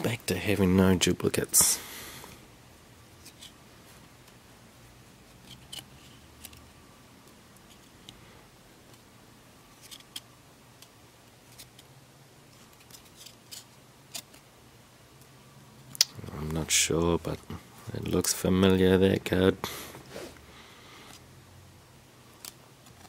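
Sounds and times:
faint low hum: 0.0 - 23.0.

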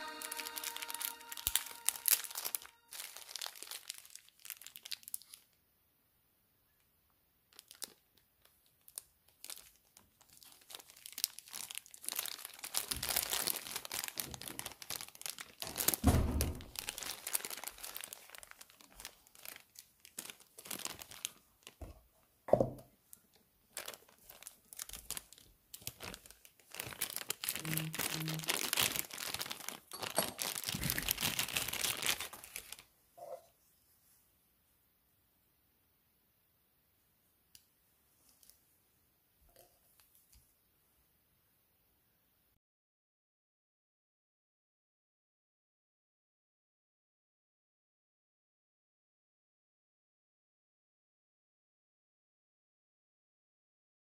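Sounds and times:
plastic wrapping crinkling: 0.0 - 5.6, 7.5 - 32.9, 38.2 - 38.6.

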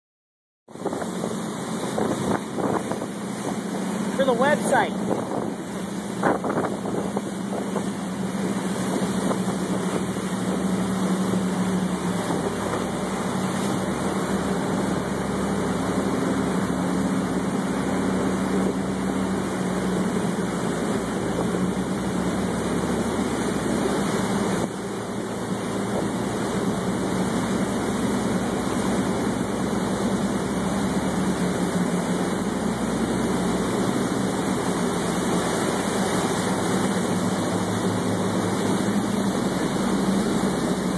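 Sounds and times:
boat engines humming: 0.7 - 40.9
water rushing along hull: 0.7 - 40.9.

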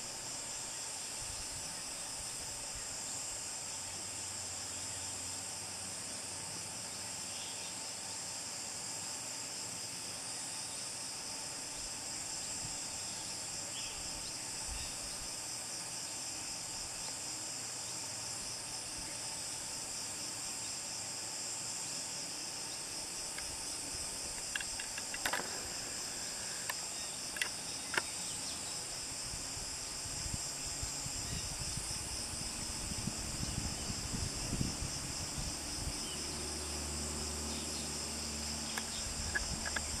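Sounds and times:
high-pitched insect chorus: 0.0 - 40.0
sharp clicks: 24.3 - 25.6, 26.6 - 28.2, 38.7 - 40.0.

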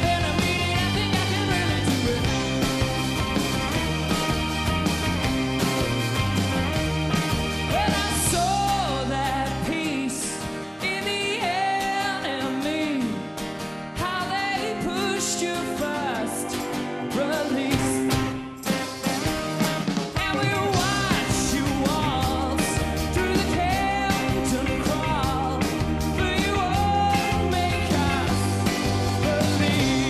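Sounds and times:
man singing lead vocal: 0.0 - 2.6, 7.7 - 18.4, 20.1 - 30.0
heavy bass: 0.0 - 9.8, 20.2 - 30.0
indie rock band playing live: 0.0 - 30.0.

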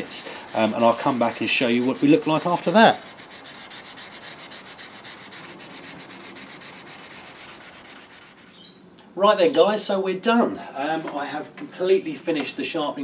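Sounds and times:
abrasive paper rasping on blade: 0.0 - 8.7.

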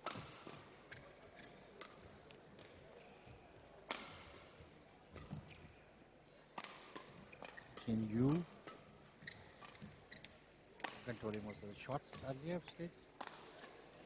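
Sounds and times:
rackets striking shuttlecock: 13.2 - 13.8.

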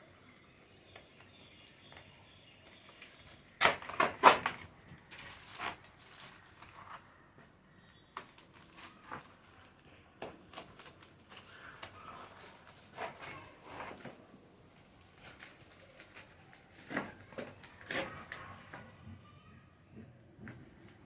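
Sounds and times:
packaging rustling and crinkling: 2.9 - 7.3, 8.1 - 18.8.

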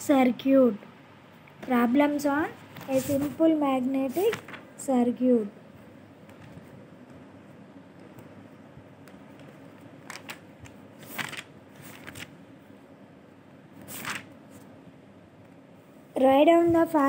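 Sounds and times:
faint rustles and clicks: 2.6 - 4.7, 6.2 - 7.3.

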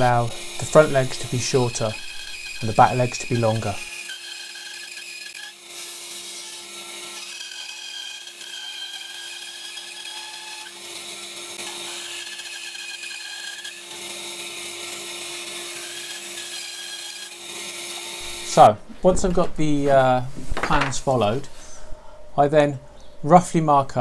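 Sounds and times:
bandsaw cutting wood: 0.0 - 18.7.

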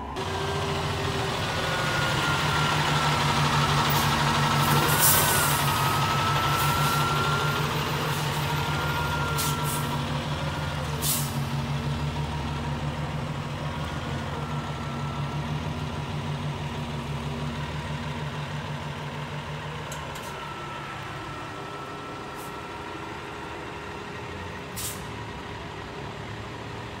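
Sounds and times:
diesel engine running: 0.0 - 27.0
air brake hisses: 11.0 - 11.4, 22.4 - 22.6, 24.8 - 25.1.

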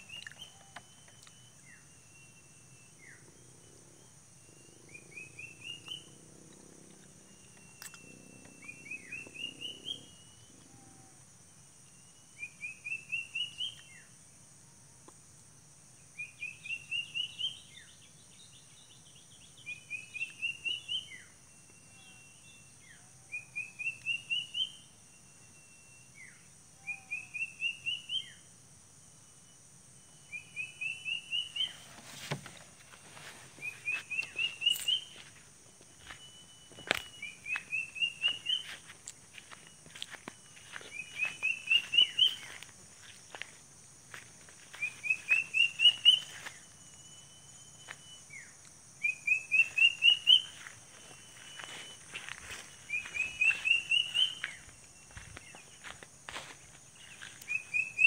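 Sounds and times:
rustling and knocks: 31.8 - 33.4
bird whistling a phrase: 40.9 - 42.6, 48.0 - 50.6, 52.9 - 54.6.

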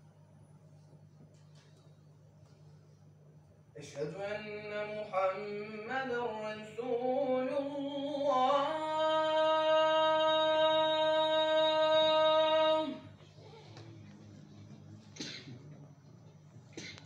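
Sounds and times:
man chanting call to prayer: 3.8 - 13.2.

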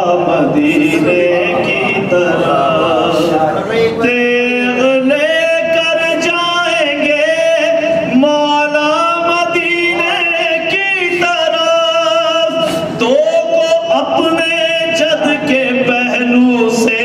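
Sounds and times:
man singing religious verse: 0.0 - 17.0.

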